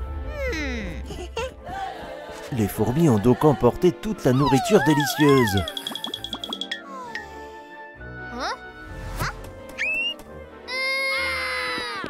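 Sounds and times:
background music: 0:00.0 - 0:12.0
cartoon voice crying in dismay: 0:04.4 - 0:05.7.

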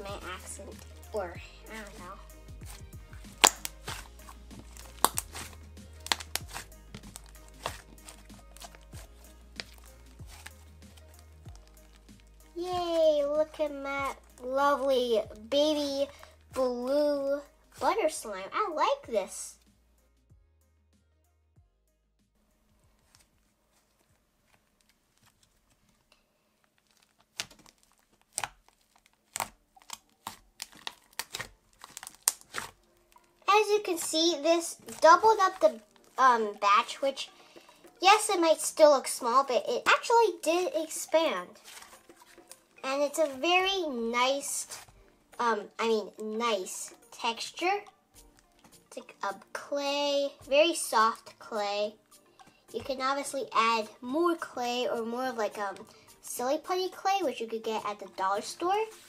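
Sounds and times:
soft slime folding sounds: 0:00.0 - 0:14.8, 0:22.9 - 0:39.0, 0:40.0 - 0:45.0
slime popping and crackling: 0:00.0 - 0:17.1, 0:26.7 - 0:49.3
background music: 0:00.0 - 0:24.8, 0:27.4 - 0:59.0.

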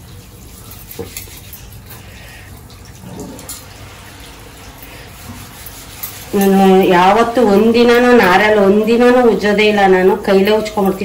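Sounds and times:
scrubbing brass items by hand: 0:00.0 - 0:08.8
tap water running into sink: 0:00.0 - 0:11.0.

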